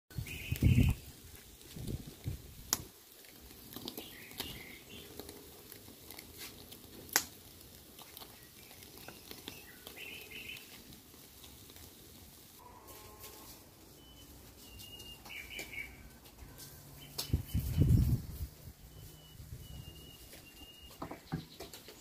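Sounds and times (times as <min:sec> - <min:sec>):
birds chirping: 0:00.1 - 0:01.2, 0:03.8 - 0:05.5, 0:08.1 - 0:10.9, 0:13.9 - 0:22.0
charcoal fire crackling: 0:00.1 - 0:22.0.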